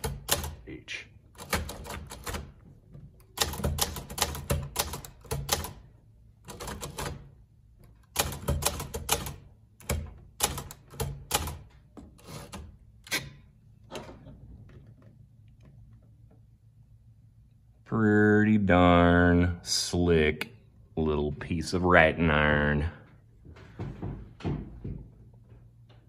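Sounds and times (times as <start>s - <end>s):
typewriter carriage clacking: 0.0s - 0.6s, 1.4s - 2.6s, 3.3s - 5.8s, 6.4s - 7.3s, 8.0s - 13.3s
typewriter type bars striking: 0.0s - 0.6s, 1.4s - 2.5s, 3.3s - 5.8s, 6.4s - 7.3s, 8.0s - 13.4s.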